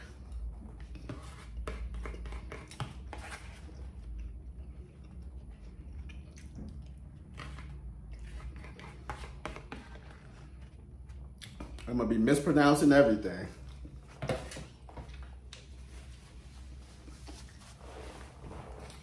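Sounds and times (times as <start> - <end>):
person chewing: 0.0 - 9.1.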